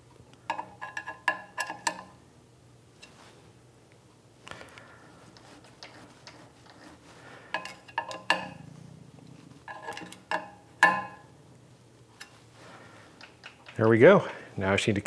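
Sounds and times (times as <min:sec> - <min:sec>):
hand tools clinking on metal: 0:07.5 - 0:08.6.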